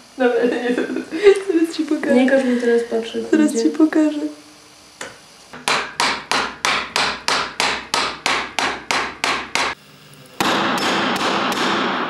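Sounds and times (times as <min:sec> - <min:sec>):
fast hammer blows: 0:10.4 - 0:12.0.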